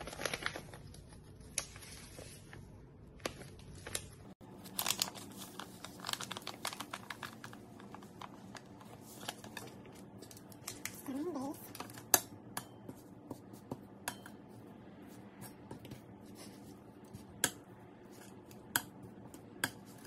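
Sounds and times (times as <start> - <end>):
plastic sachet crinkling: 0.0 - 2.5, 3.1 - 12.0.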